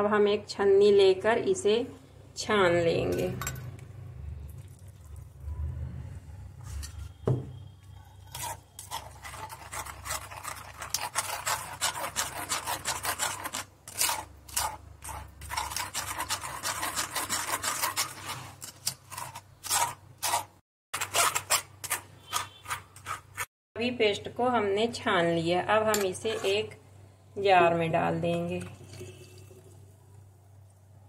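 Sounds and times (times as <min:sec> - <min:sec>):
paste rasping through wire strainer: 0:08.1 - 0:23.5.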